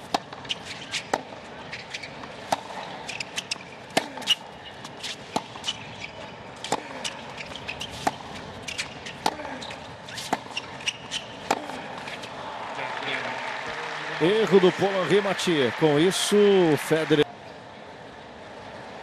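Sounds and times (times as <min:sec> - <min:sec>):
racquets striking tennis ball: 0:00.0 - 0:12.4.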